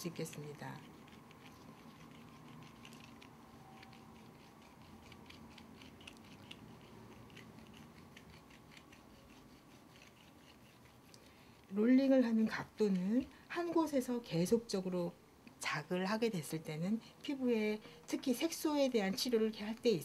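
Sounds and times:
soft ticks and scratches: 0.0s - 13.9s
faint room hum: 0.0s - 20.0s.

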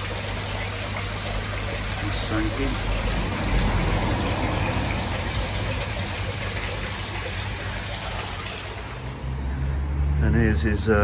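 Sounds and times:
water splashing into pond: 0.0s - 10.1s
low rumble: 2.7s - 7.6s.

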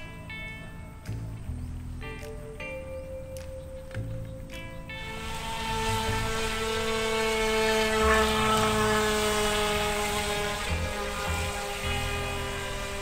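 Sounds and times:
small electric motor whining: 5.0s - 13.0s.

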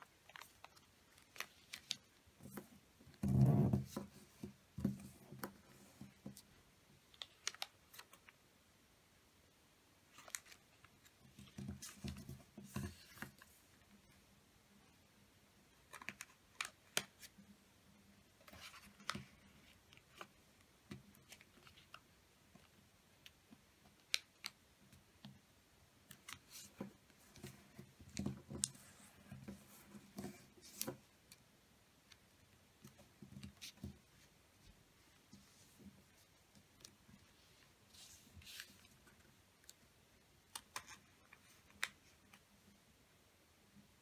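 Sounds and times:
paper being folded and creased: 0.0s - 6.4s, 7.1s - 8.4s, 10.1s - 13.6s, 15.8s - 17.4s, 18.4s - 20.4s, 35.3s - 39.8s, 40.5s - 42.4s.

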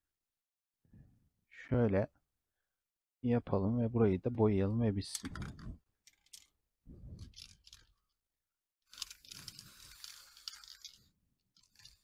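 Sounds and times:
spray paint can hissing: 9.3s - 10.9s.

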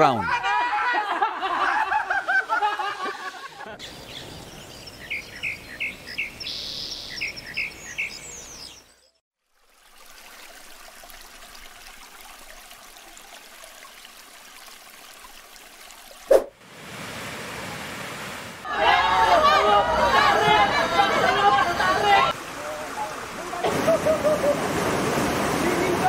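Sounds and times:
flowing stream: 1.5s - 26.0s
birds chirping: 3.6s - 9.2s.

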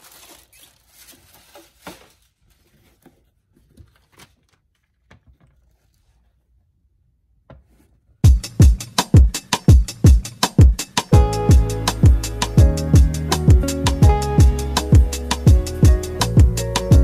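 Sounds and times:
packing material rustling: 0.0s - 6.3s
music with drum beat: 8.2s - 17.0s.

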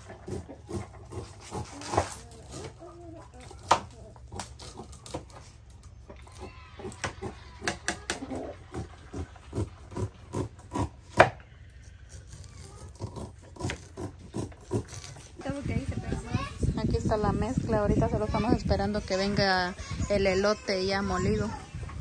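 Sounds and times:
knife scraping corn cobs: 0.0s - 15.6s.

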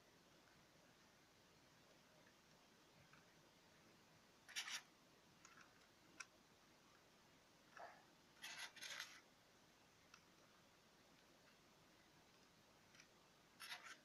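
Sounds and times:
small clicks: 4.5s - 7.0s, 12.3s - 14.0s
hands scratching and rubbing: 13.0s - 14.0s.

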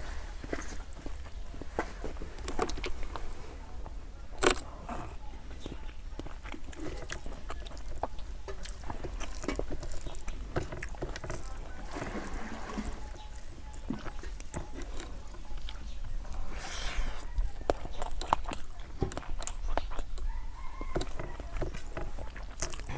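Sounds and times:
mouth smacks while chewing: 4.4s - 11.6s, 12.8s - 22.9s.

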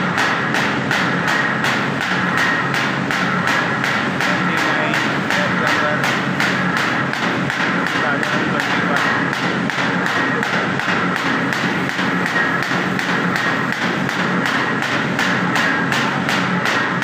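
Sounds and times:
machine clattering: 0.0s - 17.0s
steady mechanical hum: 0.0s - 17.0s.

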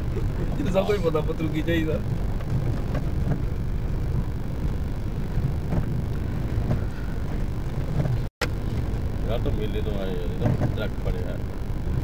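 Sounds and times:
vehicle rumble on dirt road: 0.0s - 12.0s
wind noise on microphone: 2.0s - 9.3s.

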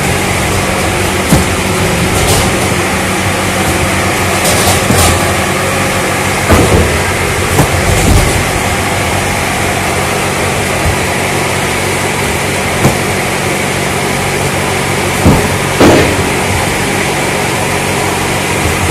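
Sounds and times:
loud machine drone: 0.0s - 18.9s
cardboard cartons knocking: 6.4s - 8.5s, 15.2s - 16.2s.

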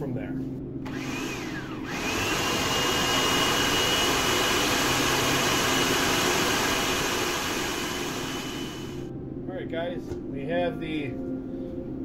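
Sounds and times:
food processor motor whining: 0.8s - 9.1s.

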